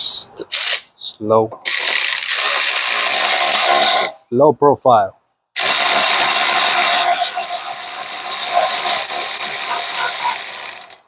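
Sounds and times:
electric ratchet running: 1.6s - 4.2s, 5.6s - 11.0s.

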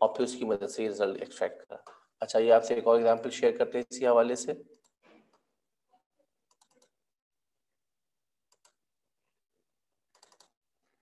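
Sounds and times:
computer mouse clicks: 6.5s - 7.0s, 8.5s - 8.8s, 10.1s - 10.6s.

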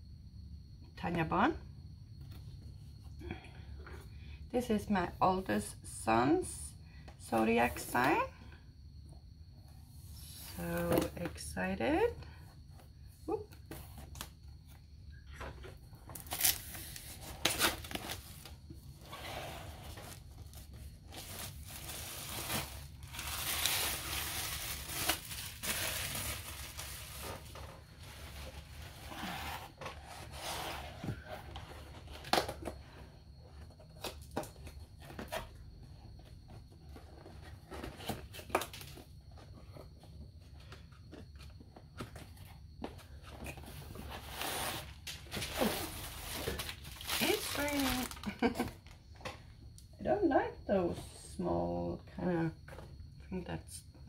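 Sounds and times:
cardboard rubbing and sliding: 28.2s - 31.1s.

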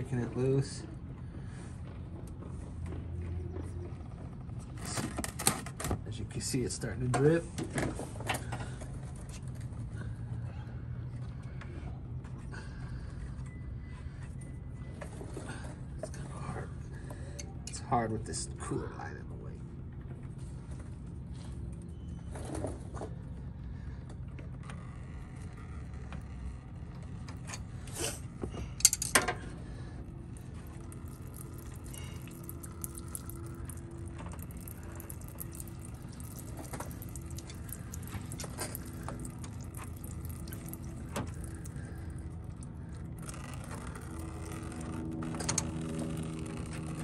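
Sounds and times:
steady low hum: 0.0s - 47.0s
coolant trickling into pan: 30.2s - 47.0s.

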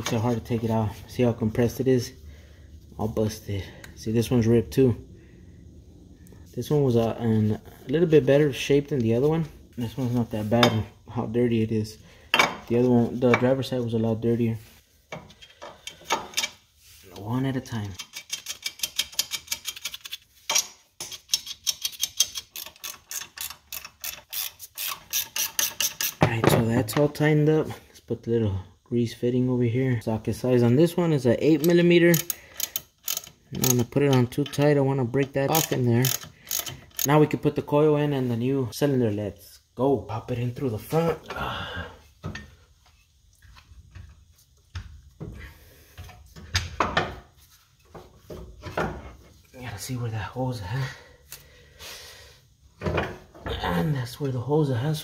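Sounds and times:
ratchet wrench clicking rapidly: 21.2s - 26.2s, 32.1s - 33.9s, 35.5s - 37.1s.

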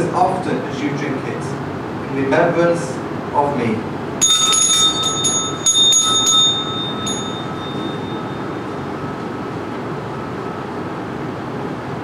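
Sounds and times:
small altar bell ringing: 4.2s - 9.3s.

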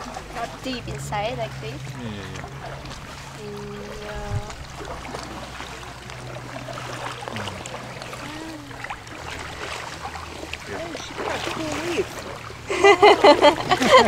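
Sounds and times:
paddle splashes: 0.0s - 14.0s
water trickling and dripping: 0.0s - 14.0s
hummed note: 7.3s - 8.2s.

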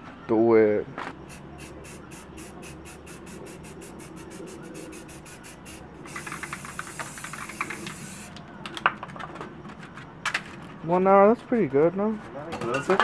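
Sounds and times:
spray hiss: 1.2s - 8.4s
spray paint can rattling: 1.3s - 8.8s.

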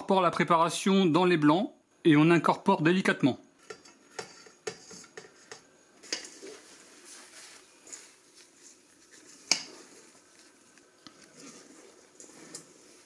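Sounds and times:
spatula squelching and scraping batter: 3.6s - 13.0s.

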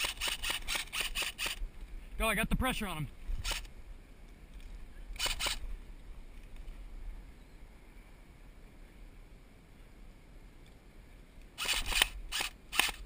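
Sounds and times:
airsoft rifle shots: 0.0s - 1.6s, 11.6s - 13.0s.

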